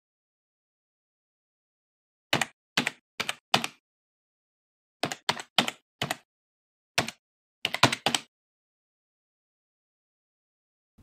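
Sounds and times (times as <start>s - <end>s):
keyboard keystrokes clicking: 5.0s - 6.2s, 7.0s - 8.3s.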